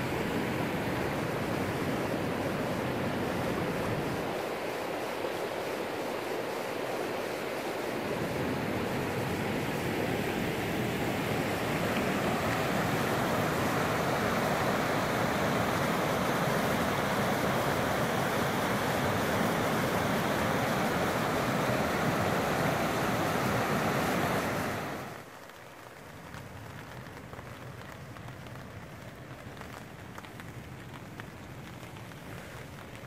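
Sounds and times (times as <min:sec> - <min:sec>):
whitewater rushing over rocks: 0:00.0 - 0:25.3
light rain on a tarp: 0:00.0 - 0:33.0.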